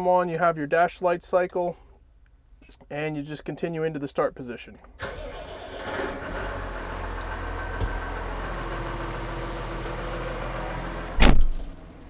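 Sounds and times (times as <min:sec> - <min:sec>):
tractor diesel engine idling: 0:05.0 - 0:11.2
loud thump: 0:11.2 - 0:11.7.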